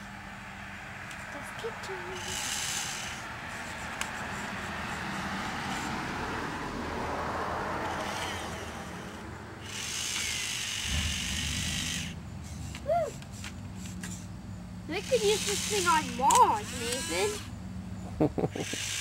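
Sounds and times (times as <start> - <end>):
small gear motors whirring: 2.0 - 6.0, 7.8 - 14.3, 14.9 - 17.6, 18.5 - 19.0.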